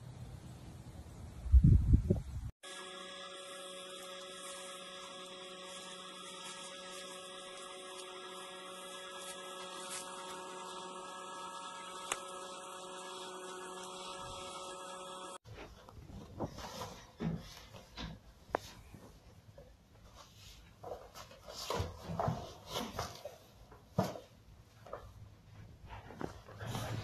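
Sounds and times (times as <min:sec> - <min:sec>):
electrical hum: 0:02.6 - 0:15.4.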